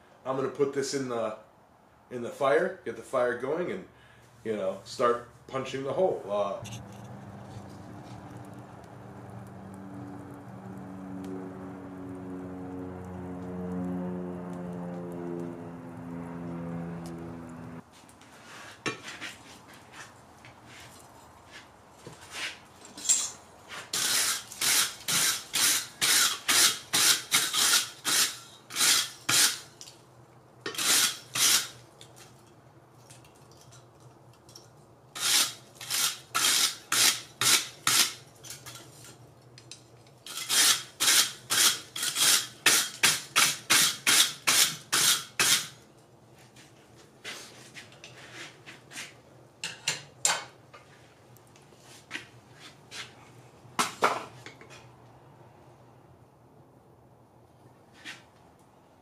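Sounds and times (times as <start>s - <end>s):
wire brush scrubbing hot steel: 22.3s - 29.9s, 30.7s - 32.3s, 35.2s - 45.8s.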